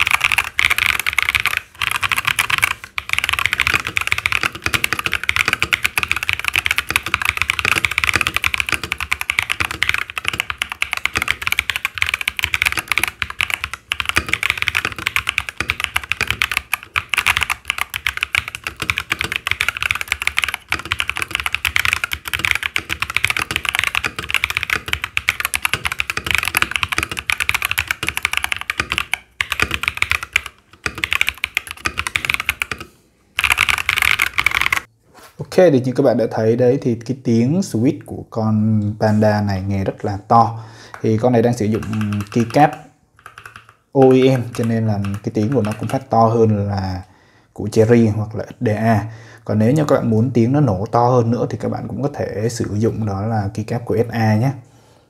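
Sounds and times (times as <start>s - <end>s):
mechanical keyboard typing: 0.0s - 34.9s, 41.5s - 46.1s.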